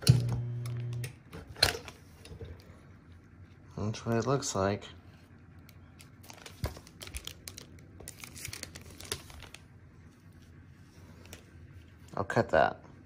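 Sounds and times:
plastic bag crinkling: 6.0 - 9.7.

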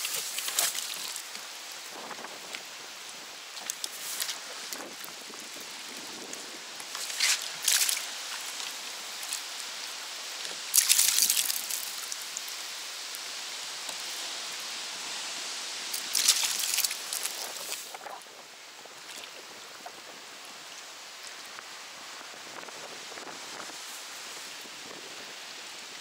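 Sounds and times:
fish thrashing and splashing: 0.0 - 1.4, 7.0 - 8.6, 10.7 - 12.2, 16.0 - 18.0
sea water washing: 0.0 - 12.7, 15.9 - 20.0.

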